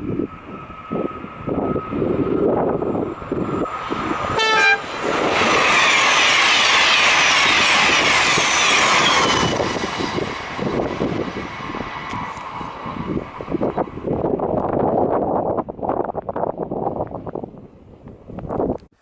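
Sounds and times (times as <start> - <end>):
high-speed train passing: 0.0 - 18.8
wind buffeting microphone: 0.0 - 18.9
train horn blast: 4.3 - 4.9.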